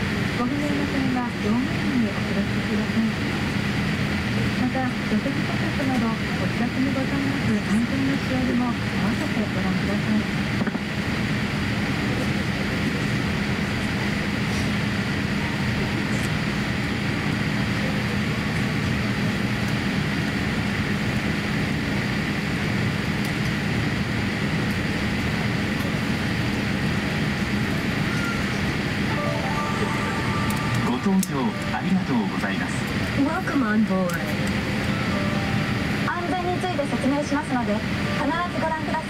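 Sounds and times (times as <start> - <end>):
constant low hum: 0.0 - 39.0
rush of air in aircraft cabin: 0.0 - 39.0
faint high whine: 27.9 - 33.1.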